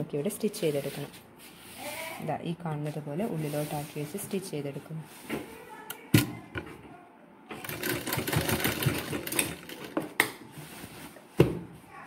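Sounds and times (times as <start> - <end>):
sewing machine stitching: 7.6 - 10.1.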